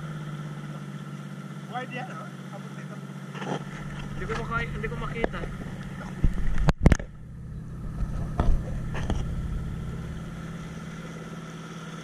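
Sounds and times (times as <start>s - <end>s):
outboard motor running: 0.0s - 12.0s.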